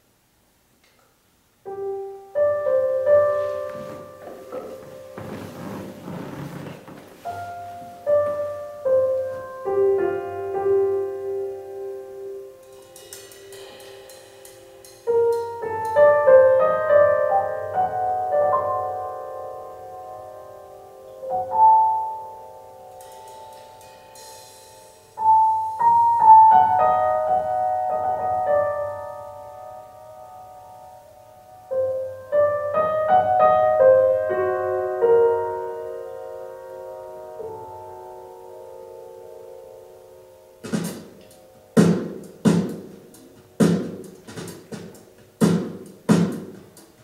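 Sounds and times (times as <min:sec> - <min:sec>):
piano music through loudspeakers: 0:01.6 - 0:47.0
high percussion rattles: 0:12.6 - 0:16.0, 0:23.0 - 0:25.9.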